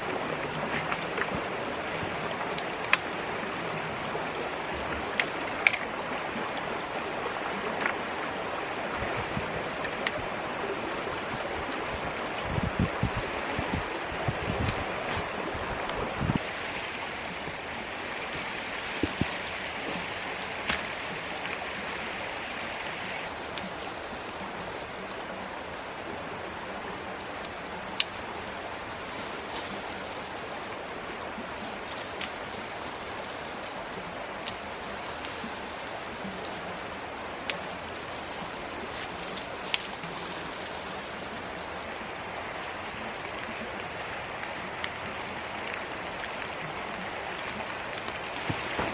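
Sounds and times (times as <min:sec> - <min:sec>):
creek water flowing: 0:00.0 - 0:48.9
dry twigs snapping: 0:23.0 - 0:25.3, 0:27.0 - 0:48.9.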